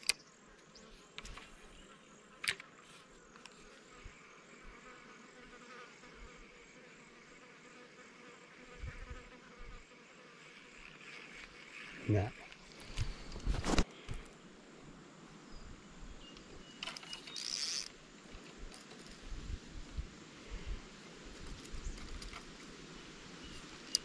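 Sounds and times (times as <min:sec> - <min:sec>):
insects buzzing: 0:00.0 - 0:24.0
spinning reel click: 0:17.3 - 0:17.9.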